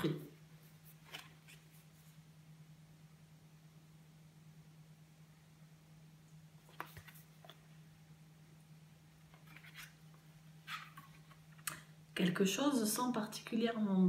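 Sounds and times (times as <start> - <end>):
book pages rustling: 0.6 - 2.2, 6.6 - 7.7, 9.3 - 11.7.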